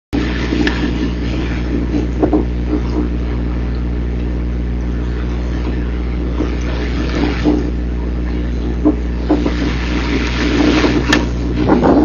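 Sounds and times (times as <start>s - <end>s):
steady low hum: 0.1s - 12.0s
wind buffeting microphone: 4.9s - 12.0s.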